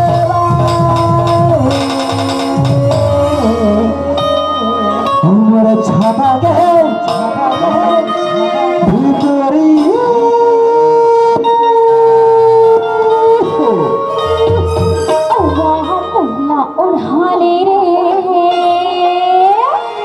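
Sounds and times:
drum strokes: 0.0 - 7.9.

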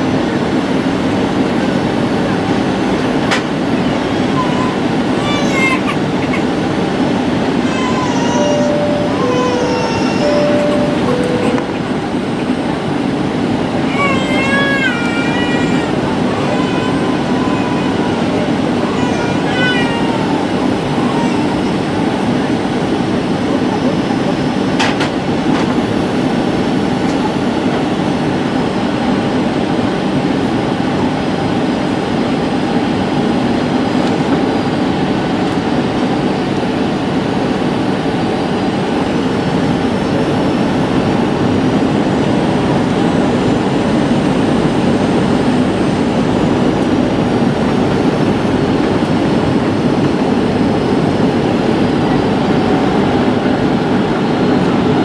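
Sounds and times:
airplane cabin airflow rush: 0.0 - 55.0
jet engines droning: 0.0 - 55.0
faint high whining tones: 7.9 - 12.6.

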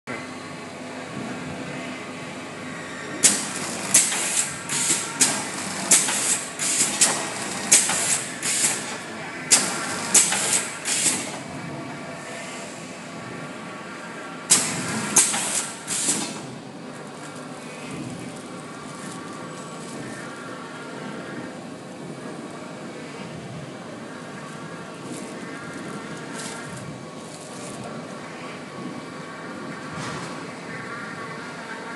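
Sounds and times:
packing machine humming: 0.1 - 31.9
pneumatic hissing bursts: 3.2 - 8.9, 14.5 - 16.4.

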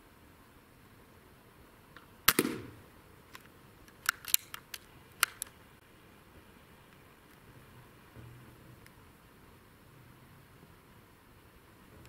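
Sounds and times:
air rifle shot: 2.3 - 2.8.

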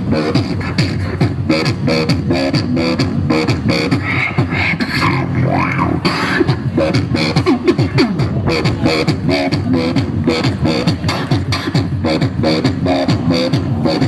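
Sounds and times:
person beatboxing into microphone: 0.0 - 14.0.

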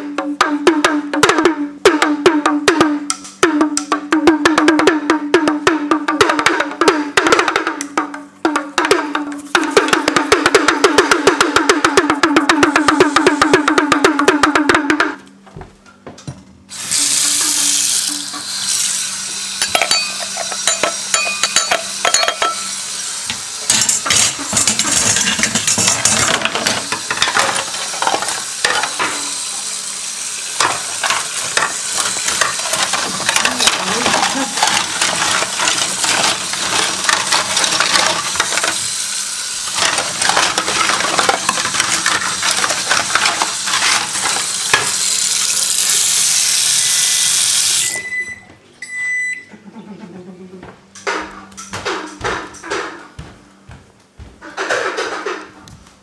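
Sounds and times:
steady hiss: 22.6 - 32.8, 38.1 - 48.0.

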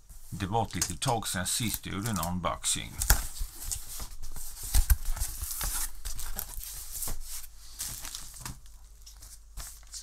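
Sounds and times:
packing rustling: 3.1 - 10.0.

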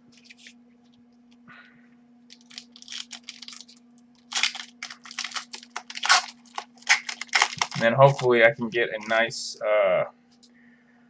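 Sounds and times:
steady low hum: 0.0 - 11.0
paper cards rustling: 0.1 - 0.6, 2.3 - 9.3.

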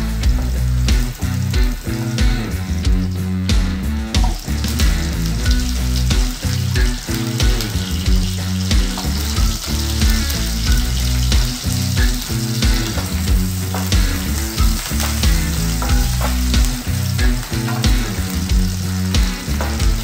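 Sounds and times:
background music with beat: 0.0 - 20.0
garlic sizzling in hot oil: 0.0 - 20.0.

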